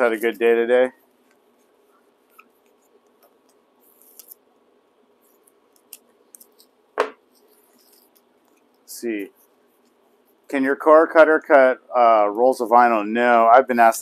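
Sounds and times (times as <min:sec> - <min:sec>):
label rolls rustling: 0:00.0 - 0:04.5
faint steady hum: 0:00.0 - 0:14.0.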